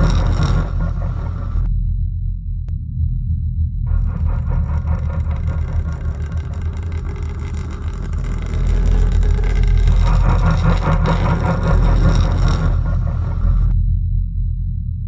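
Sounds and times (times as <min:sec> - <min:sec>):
low rumbling horror score drone: 0:00.0 - 0:15.0.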